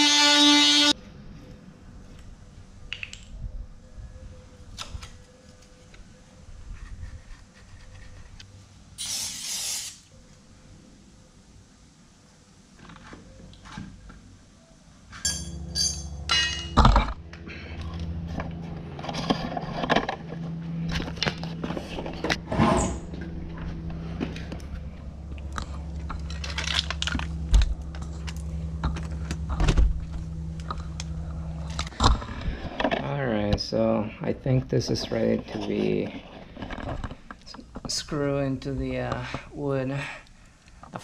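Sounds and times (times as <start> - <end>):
power tool motor running: 0.0 - 0.9.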